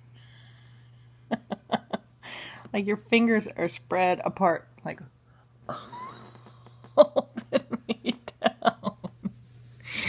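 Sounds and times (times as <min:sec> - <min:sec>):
woman laughing: 0:01.3 - 0:02.1, 0:05.7 - 0:10.0.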